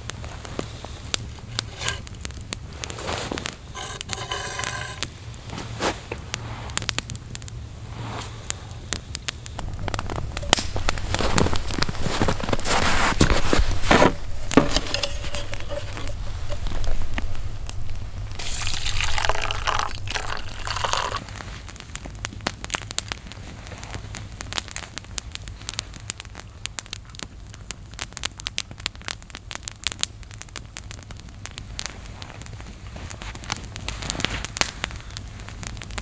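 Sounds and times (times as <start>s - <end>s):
campfire crackling and popping: 0.0s - 36.0s
water poured into metal mug: 18.4s - 21.2s.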